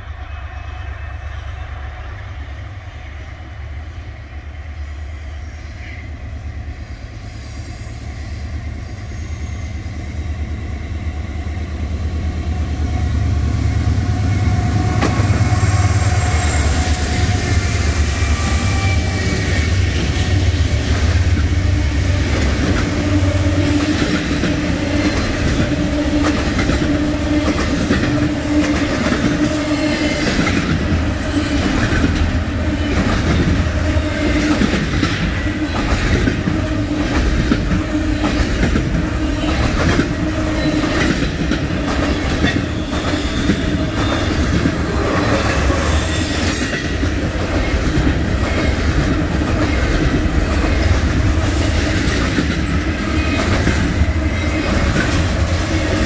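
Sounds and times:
train wheels rumbling on rail: 0:00.0 - 0:56.0
wheel squeal: 0:42.5 - 0:46.7.

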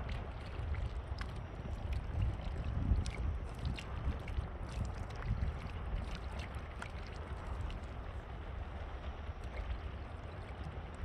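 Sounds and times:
wind buffeting microphone: 0:00.0 - 0:06.6.

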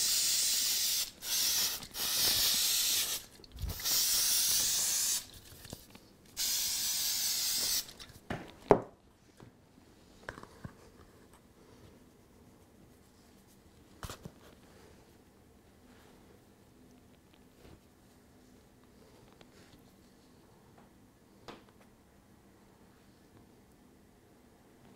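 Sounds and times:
aerosol spray can hissing: 0:00.0 - 0:05.3, 0:06.4 - 0:08.0.

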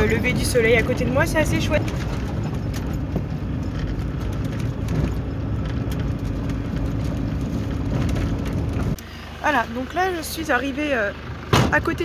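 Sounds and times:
engine hum and tyre rumble: 0:00.0 - 0:12.0
knocks and rattles in cab: 0:00.1 - 0:09.0, 0:11.5 - 0:12.0.

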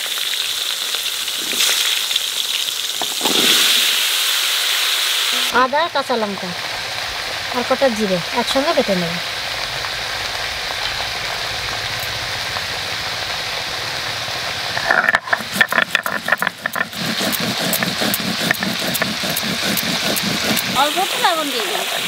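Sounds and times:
steady hiss: 0:00.0 - 0:22.0
stone muller grinding on stone slab: 0:03.0 - 0:04.0, 0:14.7 - 0:22.0.

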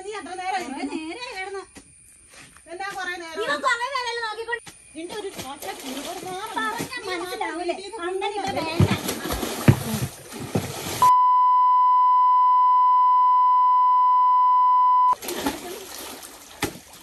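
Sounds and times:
water splashing: 0:05.2 - 0:07.4, 0:08.4 - 0:11.1, 0:15.1 - 0:17.0
censor bleep tone: 0:11.0 - 0:15.2.

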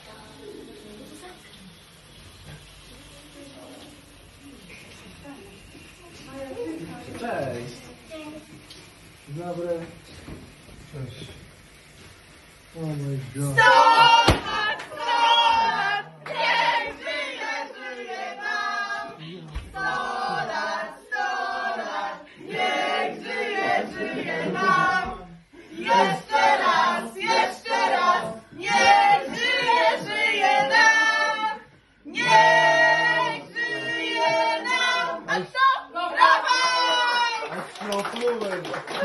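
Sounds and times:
people singing a birthday tune: 0:13.2 - 0:37.2.

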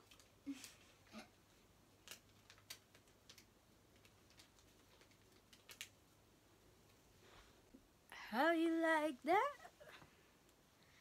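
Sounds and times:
faint irregular clicks: 0:02.0 - 0:06.0.

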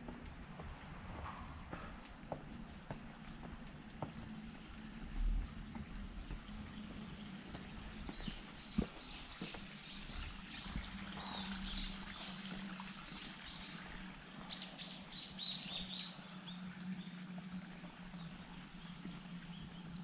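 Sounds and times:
small birds chirping: 0:06.7 - 0:17.2.

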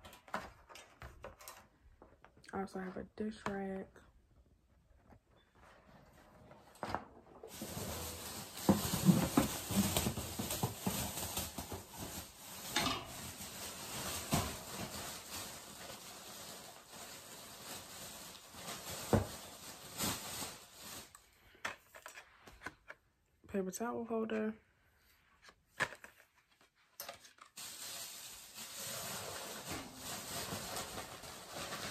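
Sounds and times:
packaging rustling and scraping: 0:05.0 - 0:23.0, 0:25.4 - 0:31.9.

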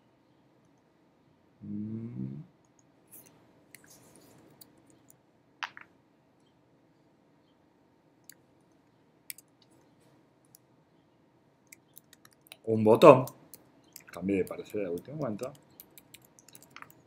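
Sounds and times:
computer mouse clicks: 0:11.6 - 0:17.0.

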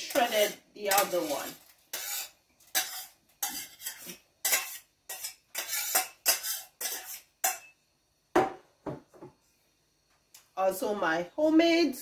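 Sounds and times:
metal utensil scraping a bowl: 0:00.0 - 0:07.7.

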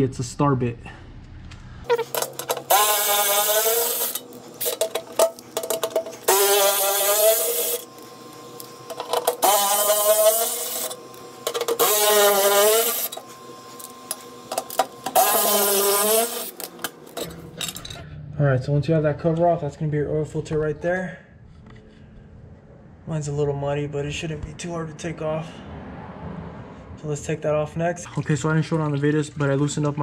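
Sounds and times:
electric ratchet whirring: 0:01.9 - 0:17.9.

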